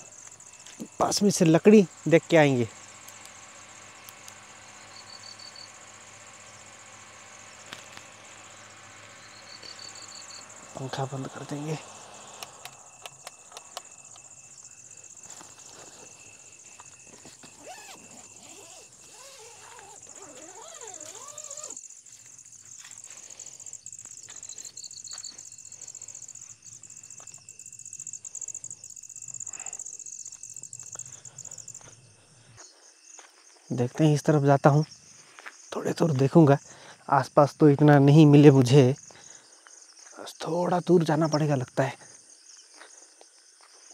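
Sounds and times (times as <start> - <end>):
insects chirping: 0.0 - 43.9
sharp clicks: 12.3 - 14.3.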